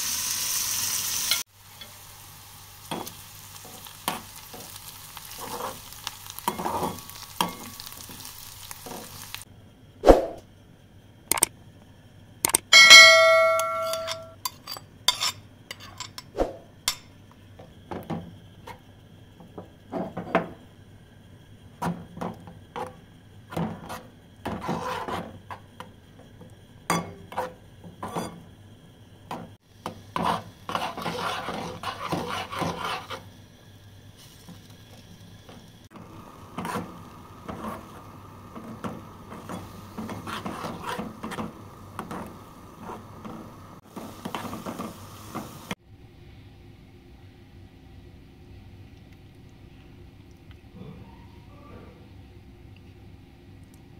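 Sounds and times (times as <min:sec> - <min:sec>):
utensil scraping and tapping pot: 0:12.5 - 0:16.3, 0:22.2 - 0:26.0, 0:26.9 - 0:28.4, 0:29.3 - 0:33.3, 0:36.6 - 0:44.9
plate clinking against metal pot: 0:12.8 - 0:16.3.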